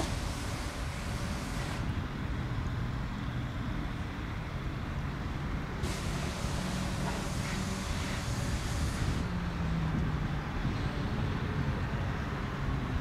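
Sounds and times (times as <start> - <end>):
jet engines rumbling: 0.0 - 2.3, 5.8 - 10.7
high engine hiss: 0.0 - 2.4, 5.8 - 9.5.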